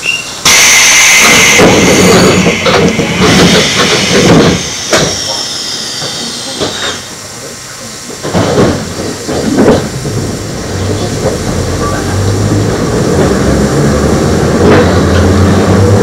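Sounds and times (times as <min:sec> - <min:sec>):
train motors humming: 0:00.0 - 0:16.0
knocks: 0:01.6 - 0:05.4.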